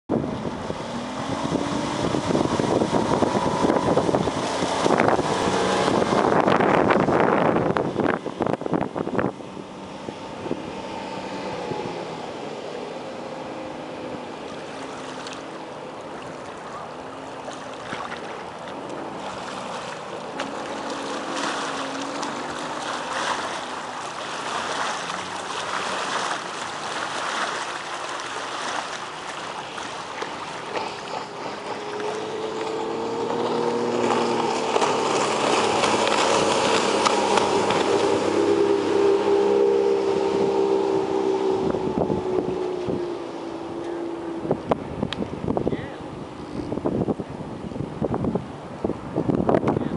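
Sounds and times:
outboard motor boat running: 0.1 - 49.9.

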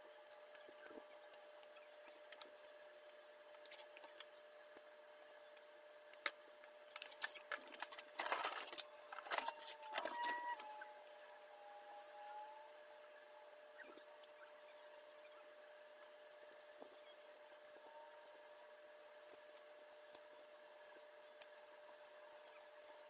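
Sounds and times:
plastic parts clicking and clattering: 6.2 - 10.6.

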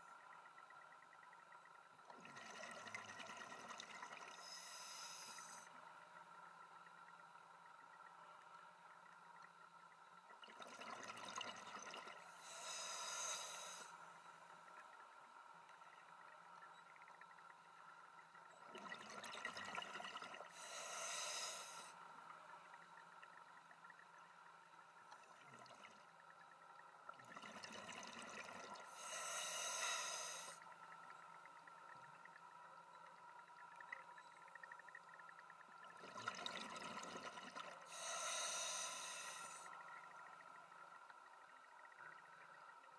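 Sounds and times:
faint steady hum: 0.0 - 42.9
diver breathing through regulator: 4.4 - 5.7, 12.4 - 13.9, 20.5 - 21.9, 28.9 - 30.6, 37.9 - 39.7.

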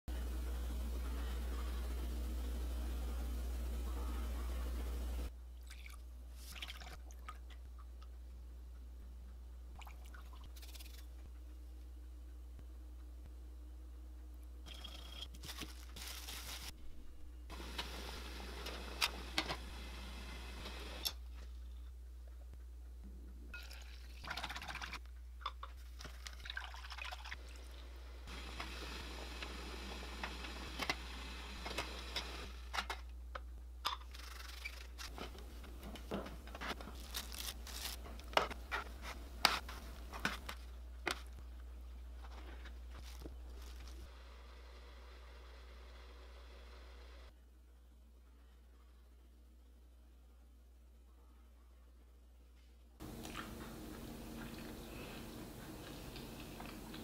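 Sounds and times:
steady low hum: 11.0 - 15.3, 53.0 - 57.0.

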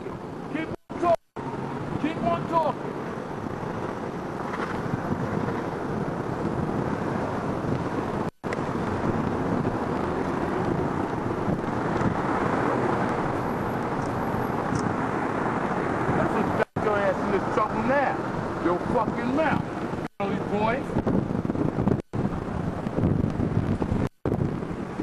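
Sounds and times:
car road and engine rumble: 0.0 - 25.0.

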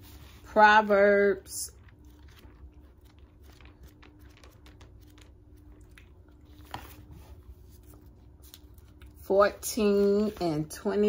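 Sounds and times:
low steady hum: 0.0 - 11.0
pages rustling: 2.0 - 9.2.

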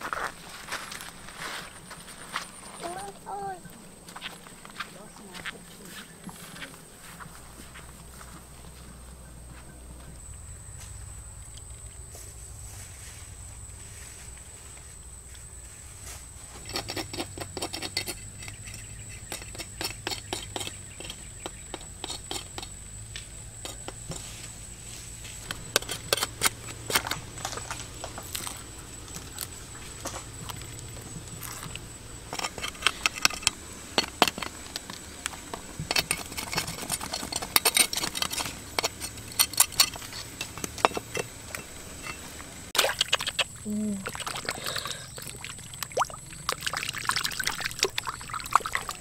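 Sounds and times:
utensils clinking on plates: 32.3 - 42.4.

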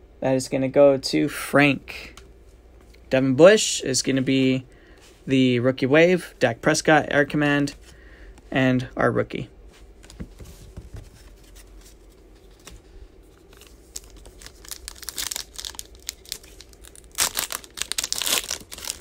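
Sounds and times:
foil wrapper crinkling and tearing: 13.3 - 19.0.

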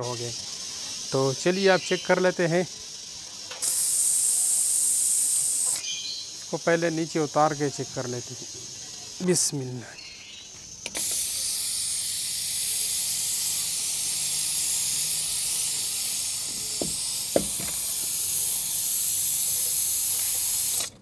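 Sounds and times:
steam hissing from valve: 0.0 - 21.0.

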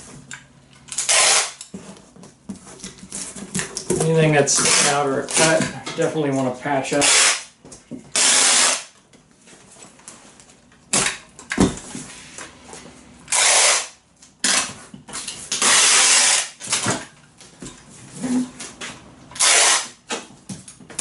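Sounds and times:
packing tape pulled from dispenser: 0.9 - 1.7, 4.6 - 5.6, 7.0 - 7.5, 8.1 - 8.9, 13.3 - 14.7, 15.5 - 16.8, 19.4 - 20.1.

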